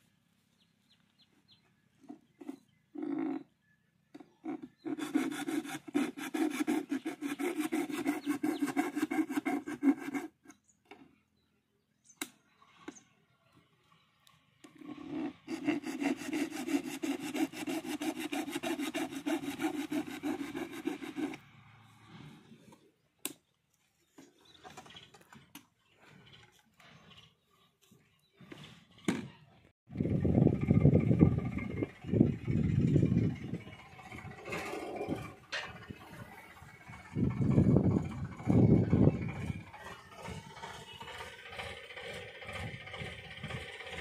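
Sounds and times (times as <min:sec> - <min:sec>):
screwdriver rasping strokes: 0:04.8 - 0:10.5, 0:15.0 - 0:21.4.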